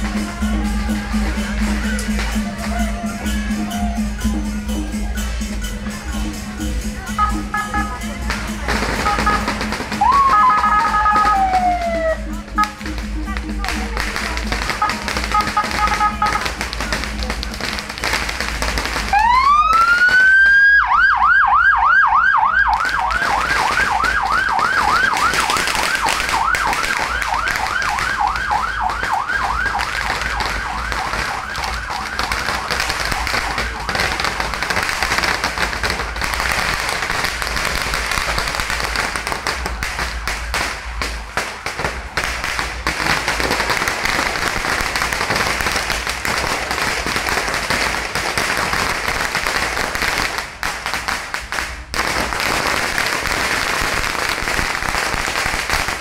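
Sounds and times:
ambulance siren: 0:00.0 - 0:05.9, 0:06.8 - 0:17.6, 0:18.4 - 0:41.0
crowd and street noise: 0:00.0 - 0:56.0.

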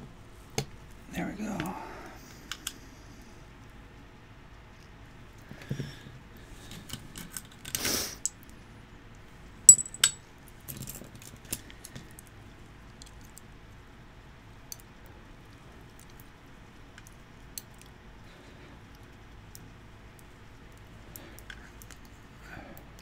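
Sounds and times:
sharp ringing metal clink: 0:09.7 - 0:10.2
metal lock parts clinking: 0:09.7 - 0:11.1.

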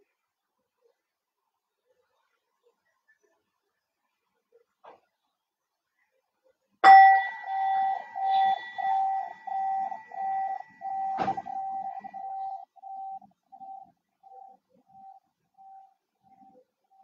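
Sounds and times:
singing bowl ringing: 0:06.8 - 0:15.1.

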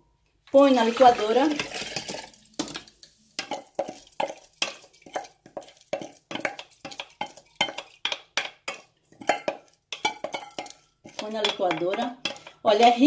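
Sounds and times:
utensil knocking against a dish: 0:09.3 - 0:12.6.

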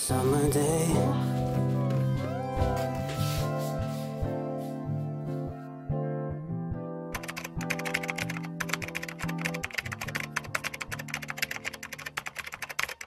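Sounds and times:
background music with guitar: 0:00.0 - 0:11.0
computer keyboard typing: 0:07.2 - 0:13.0.

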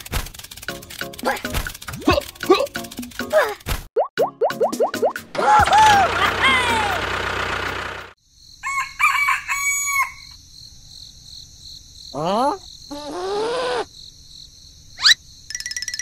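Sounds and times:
rooster crowing: 0:08.6 - 0:10.4.

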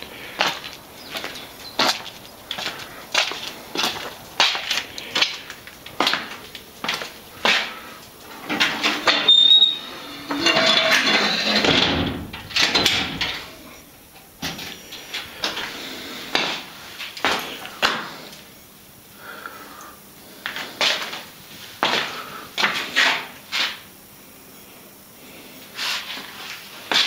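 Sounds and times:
rustling and scraping: 0:00.4 - 0:18.4, 0:25.7 - 0:27.0.

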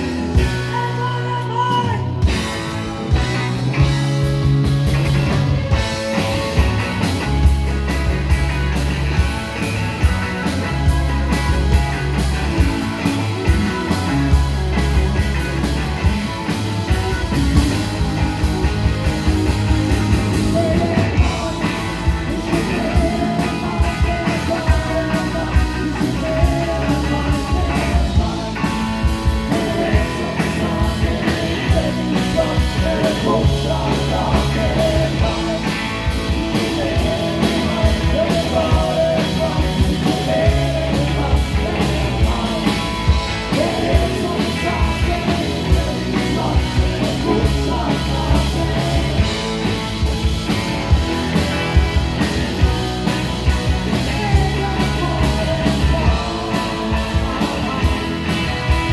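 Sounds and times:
person singing: 0:00.0 - 0:03.9, 0:20.2 - 0:50.0, 0:50.9 - 0:58.9
bass guitar: 0:00.0 - 0:58.9
drums: 0:00.0 - 0:58.9
electric guitars: 0:00.0 - 0:58.9.

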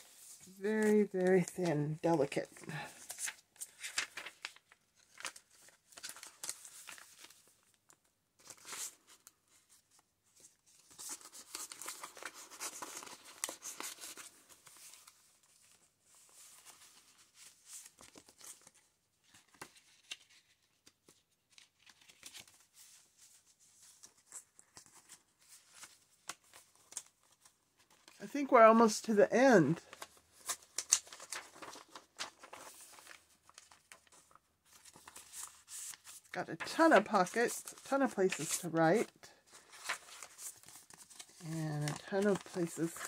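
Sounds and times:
paper pages rustling: 0:00.0 - 0:43.0.

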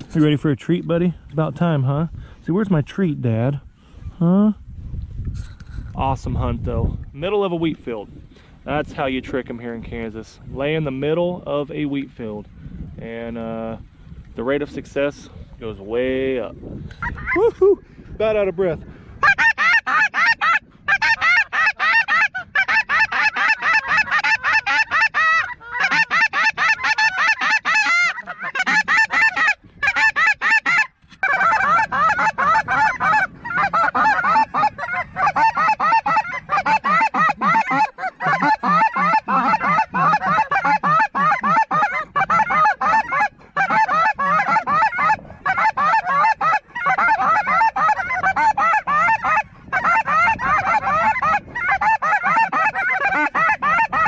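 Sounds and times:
geese honking: 0:19.2 - 0:54.0.

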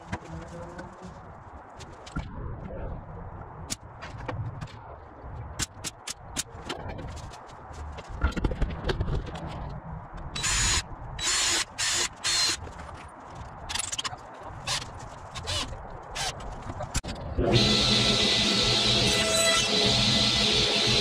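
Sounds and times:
cordless drill boring: 0:10.4 - 0:12.6, 0:17.5 - 0:21.0.

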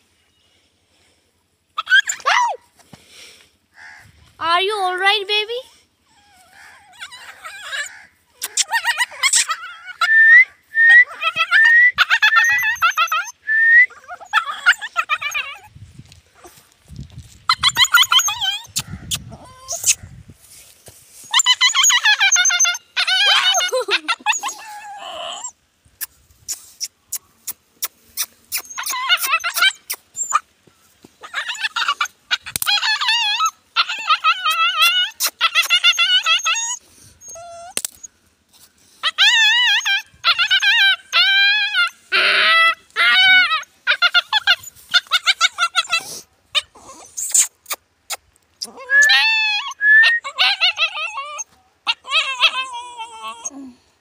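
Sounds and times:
puppy yelping and whining: 0:01.8 - 0:02.6, 0:05.6 - 0:10.2, 0:10.8 - 0:15.7, 0:17.5 - 0:20.0, 0:21.3 - 0:25.6, 0:28.2 - 0:30.5, 0:31.2 - 0:38.1, 0:39.0 - 0:47.8, 0:48.6 - 0:53.7.

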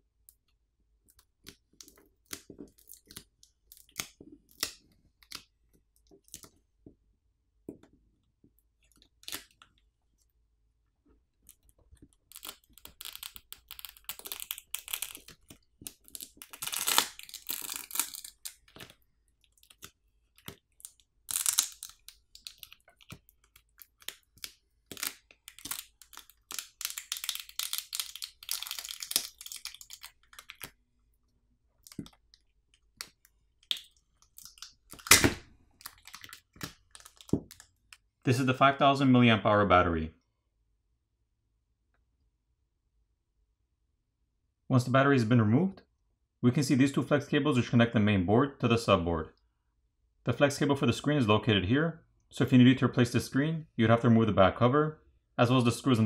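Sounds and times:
adhesive crackling and tearing: 0:11.4 - 0:30.9, 0:31.7 - 0:38.0.

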